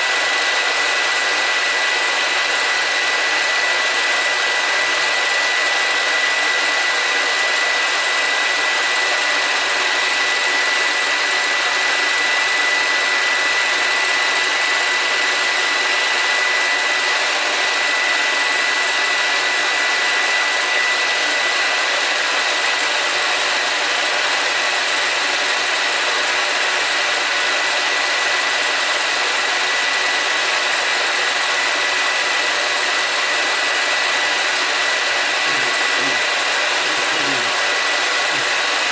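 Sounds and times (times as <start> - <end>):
film projector motor whir: 0.0 - 38.9
thin high whine: 35.4 - 38.9.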